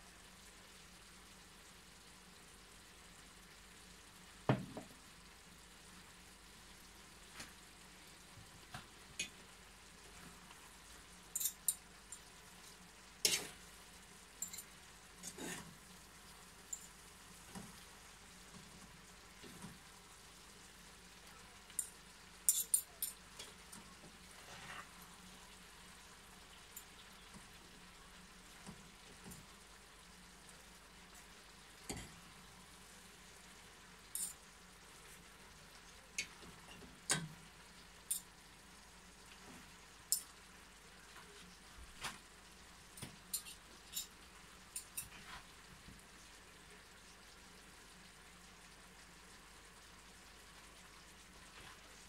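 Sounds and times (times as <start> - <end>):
faint frying sizzle: 0.0 - 52.0
fork clinking against a pan: 11.4 - 11.8, 14.4 - 15.6, 22.5 - 23.2, 34.1 - 34.4, 43.3 - 44.1.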